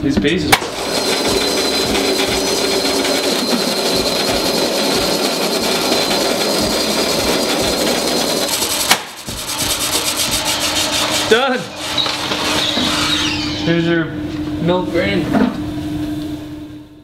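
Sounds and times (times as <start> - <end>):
grain mill grinding: 0.6 - 13.4.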